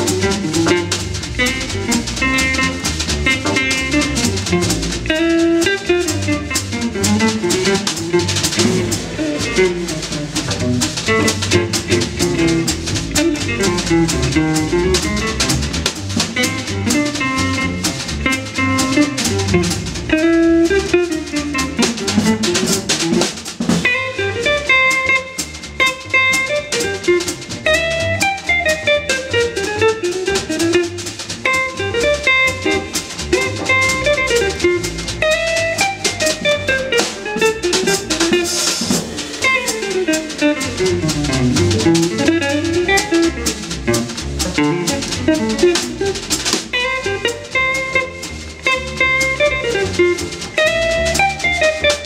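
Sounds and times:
archtop guitar: 0.0 - 52.0
drum kit: 0.0 - 52.0
plucked double bass: 0.0 - 52.0.

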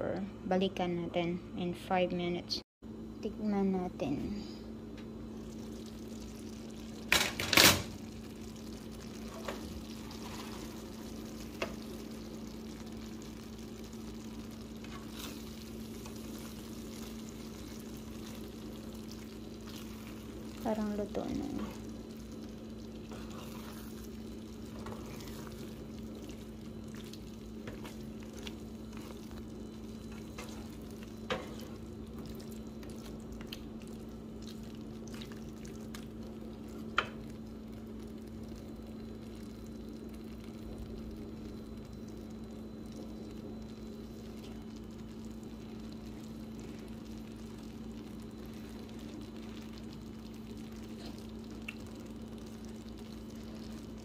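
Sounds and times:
steady low hum: 0.0 - 54.0
food sizzling in a skillet: 5.2 - 54.0
spatula stirring: 8.6 - 37.2.

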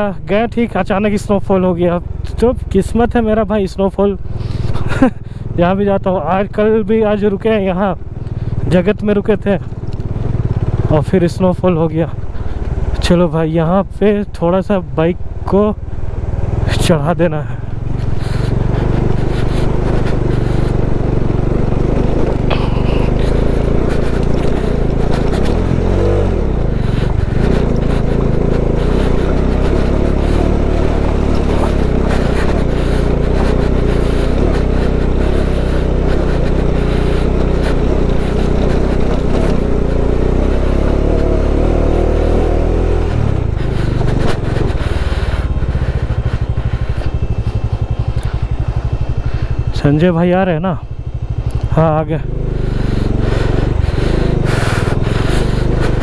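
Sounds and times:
motorcycle engine running under load: 0.0 - 56.0
scraping on rough track: 16.5 - 56.0.

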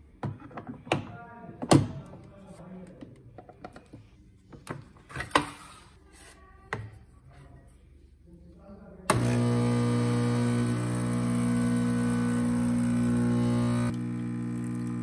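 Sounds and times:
espresso machine pump humming: 9.1 - 15.0.

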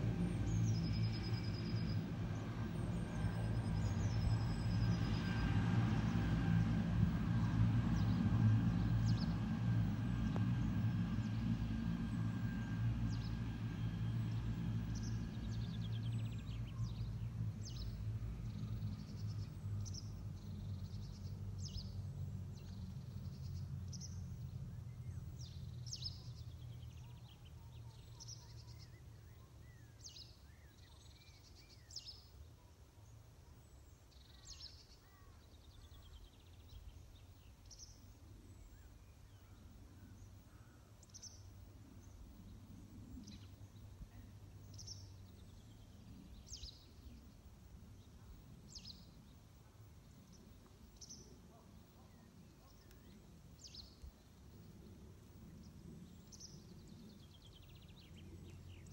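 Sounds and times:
low engine drone: 0.0 - 30.7.

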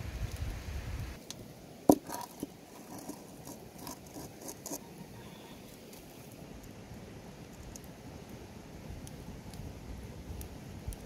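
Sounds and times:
sticks shifting in campfire: 1.2 - 6.4
metal pot knocking on stones: 1.9 - 2.4.

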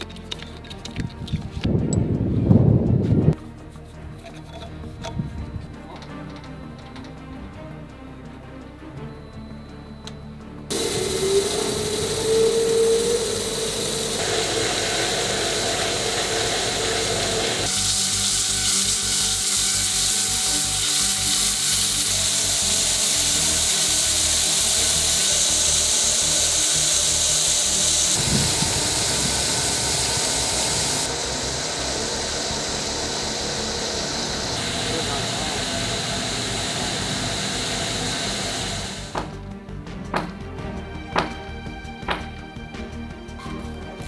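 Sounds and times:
machine whine: 9.0 - 39.2
hiss of wire and water: 10.7 - 39.1
wire saw cutting stone: 10.7 - 39.2.

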